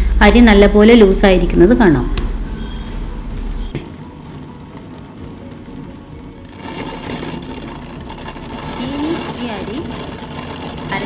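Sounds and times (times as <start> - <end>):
wet grinder motor hum: 2.4 - 11.0
stone rollers rolling rattle: 6.5 - 11.0.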